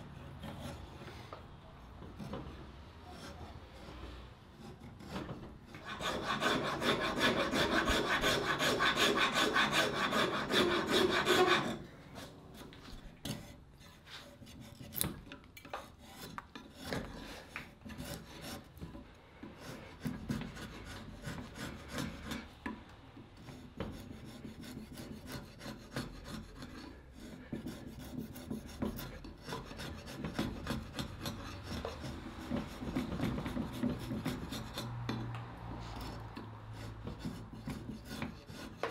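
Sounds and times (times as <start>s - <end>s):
wood sanding strokes: 5.8s - 11.8s.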